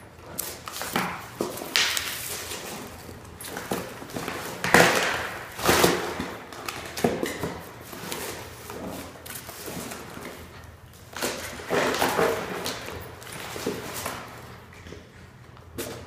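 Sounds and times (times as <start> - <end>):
cardboard ripping and scraping: 1.7 - 10.4.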